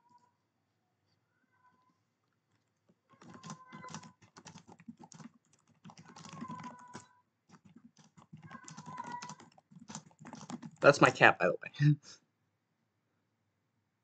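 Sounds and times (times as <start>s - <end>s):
rapid keyboard typing: 3.1s - 11.2s
cat meowing: 6.1s - 7.1s, 8.4s - 9.5s.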